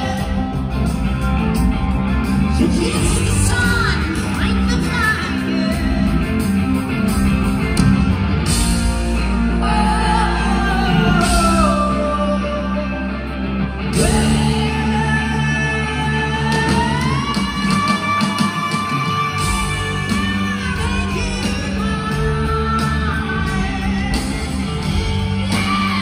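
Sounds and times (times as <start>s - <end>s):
live rock band playing: 0.0s - 26.0s
man singing long sliding notes: 13.9s - 26.0s.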